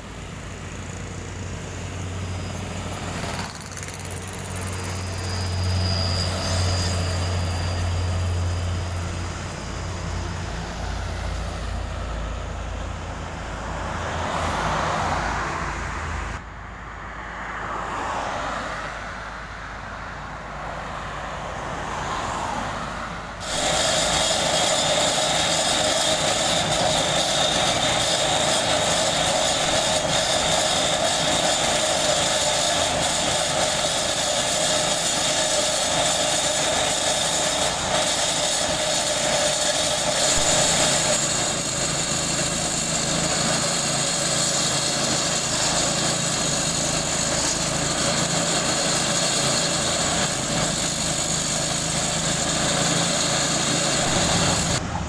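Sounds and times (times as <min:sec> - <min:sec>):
asphalt cutting saw running: 0:00.0 - 0:13.1, 0:23.4 - 0:55.0.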